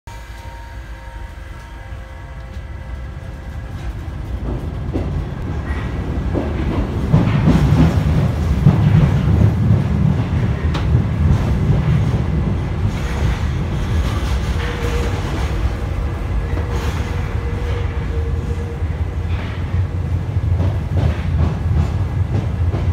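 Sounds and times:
train wheels rumbling on rail: 0:00.1 - 0:22.9
clacks over rail joints: 0:03.5 - 0:18.0, 0:19.2 - 0:22.9.

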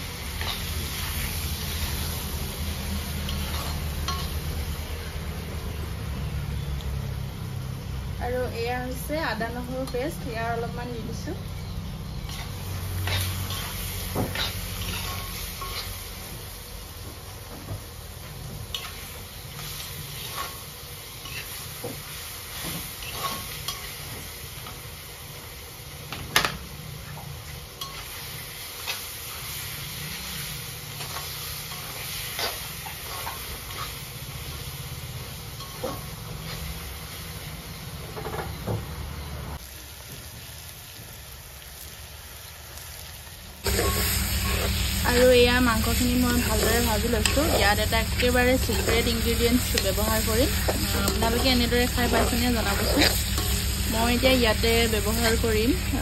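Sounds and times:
meat sizzling in a wok: 0:00.0 - 0:56.0
spatula scraping and knocking pan: 0:43.7 - 0:56.0.

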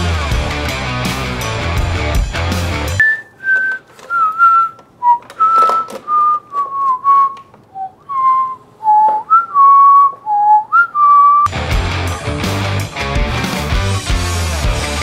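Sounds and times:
person whistling a tune: 0:03.0 - 0:11.5.

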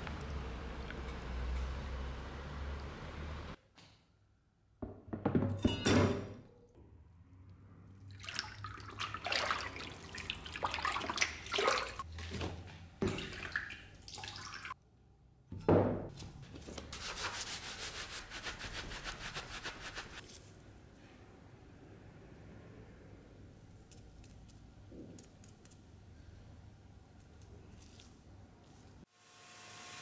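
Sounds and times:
brush scrubbing metal in water: 0:16.9 - 0:20.2.

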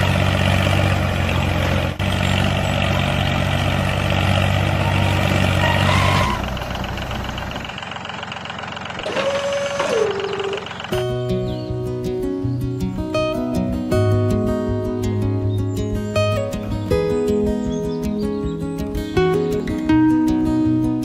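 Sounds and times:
small motor humming: 0:09.0 - 0:11.1.

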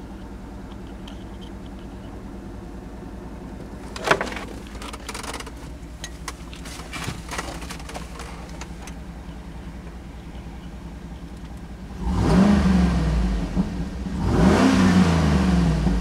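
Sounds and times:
car engine idling: 0:00.0 - 0:14.5
clicks and rustling: 0:03.5 - 0:09.1.

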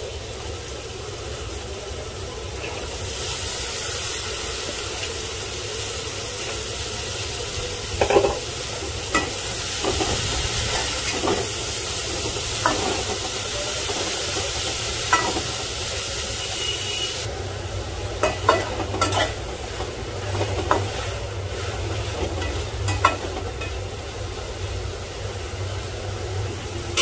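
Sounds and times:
food sizzling in pot: 0:00.0 - 0:27.0
spatula clinking against metal pot: 0:18.2 - 0:19.4.

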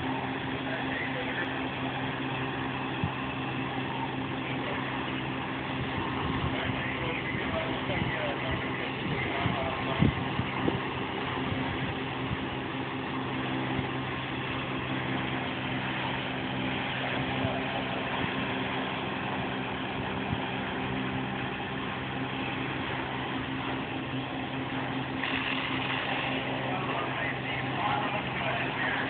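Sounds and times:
low engine drone: 0:00.0 - 0:29.0
water spraying hiss: 0:24.8 - 0:29.0.

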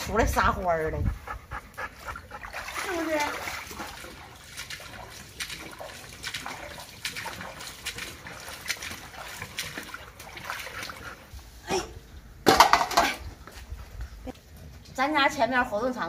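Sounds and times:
boots wading through water: 0:01.9 - 0:11.3.

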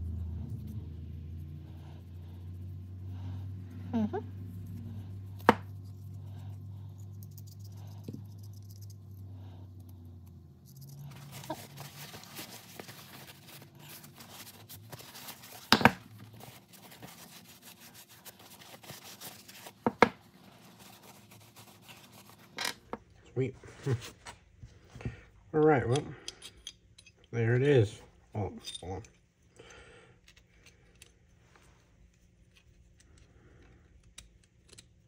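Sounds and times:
low steady hum: 0:00.0 - 0:35.0
paper towel rubbing on metal: 0:11.0 - 0:22.6.

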